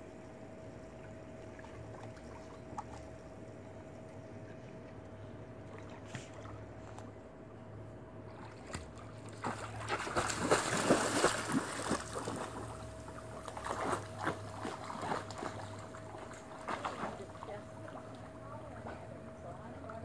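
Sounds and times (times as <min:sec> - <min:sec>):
faint steady hum: 0:00.0 - 0:20.0
dog splashing in water: 0:08.4 - 0:17.5.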